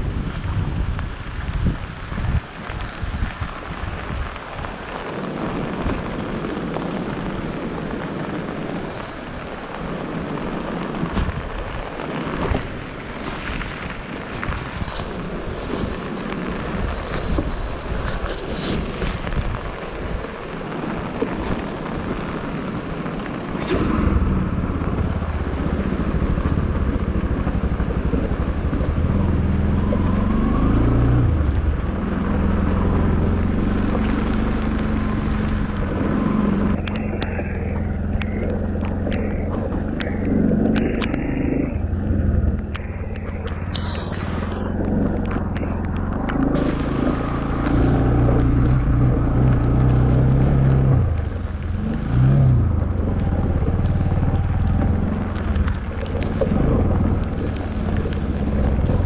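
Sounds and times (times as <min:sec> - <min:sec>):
wind noise on microphone: 0:00.0 - 0:59.0
motorcycle engine: 0:23.6 - 0:59.0.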